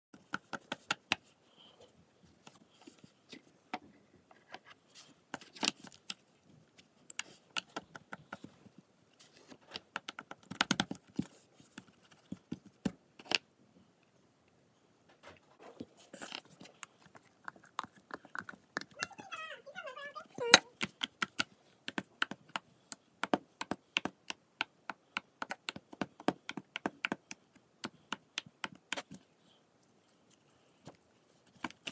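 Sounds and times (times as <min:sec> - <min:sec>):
sticky clicks and pops: 0:10.0 - 0:11.0.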